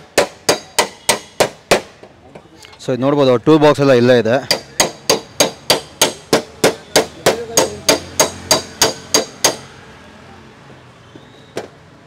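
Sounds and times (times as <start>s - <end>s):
hammer tapping on metal: 0.0s - 2.0s, 4.4s - 9.7s.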